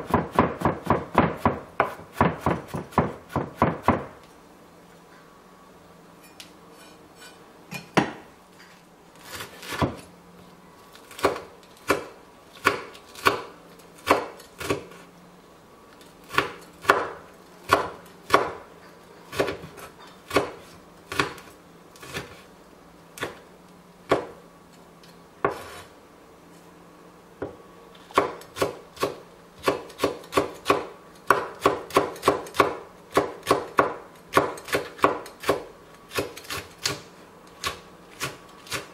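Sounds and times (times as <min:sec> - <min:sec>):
knife chopping on wooden board: 0:00.0 - 0:04.1, 0:16.3 - 0:18.6, 0:19.3 - 0:21.4, 0:25.4 - 0:25.8, 0:27.4 - 0:37.0.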